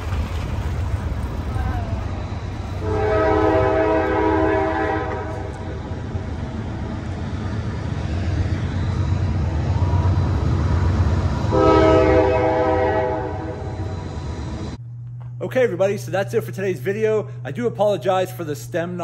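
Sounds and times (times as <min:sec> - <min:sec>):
steady low rumble: 0:00.0 - 0:19.0
train horn blasts: 0:02.7 - 0:06.3, 0:11.4 - 0:14.2.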